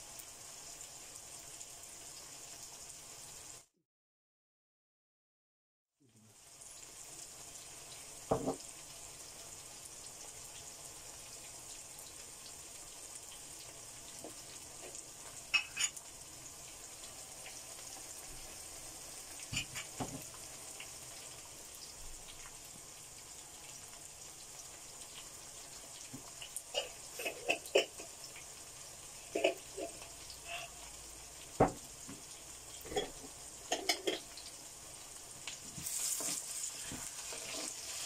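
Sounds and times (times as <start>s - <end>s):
onions sizzling in oil: 0.0s - 3.7s, 6.1s - 38.0s
knocks against pan: 8.3s - 8.6s.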